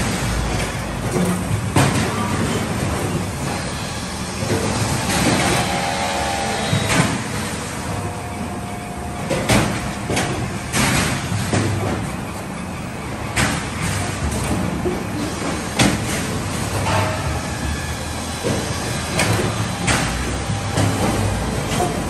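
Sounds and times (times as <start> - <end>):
logs knocking on steel conveyor: 0.0 - 3.7, 9.2 - 12.2, 13.3 - 22.0
debarking machine clatter and grind: 0.0 - 22.0
machine squeal: 3.1 - 9.4.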